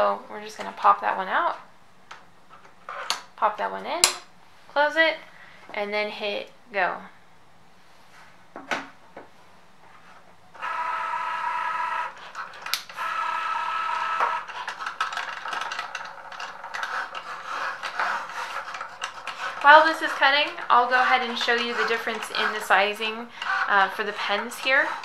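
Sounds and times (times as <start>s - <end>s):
cutting machine motors whirring: 10.6s - 25.0s.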